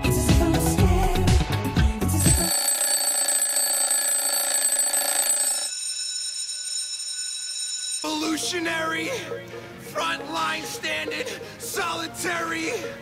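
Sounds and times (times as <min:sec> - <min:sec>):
background music: 0:00.0 - 0:02.6, 0:08.0 - 0:13.0
smartphone alarm tone: 0:02.2 - 0:08.4.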